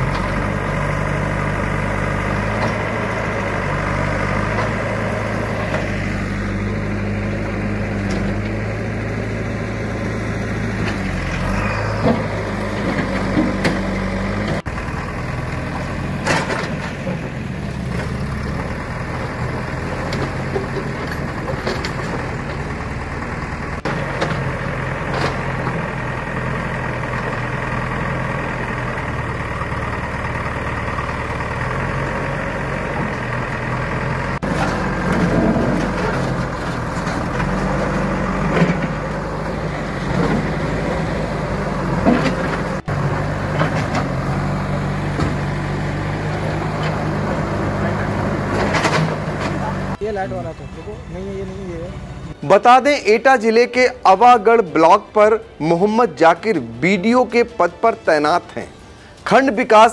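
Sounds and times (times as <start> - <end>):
diesel engine running: 0.0 - 59.9.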